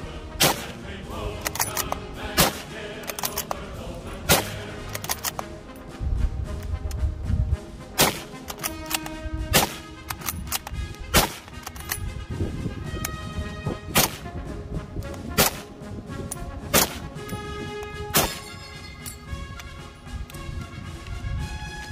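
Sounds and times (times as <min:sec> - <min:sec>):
background music: 0:00.0 - 0:21.9
rifle shots: 0:00.4 - 0:00.8, 0:02.4 - 0:02.7, 0:04.3 - 0:05.3, 0:08.0 - 0:11.8, 0:13.9 - 0:14.3, 0:15.3 - 0:15.8, 0:16.7 - 0:17.2, 0:18.1 - 0:18.6.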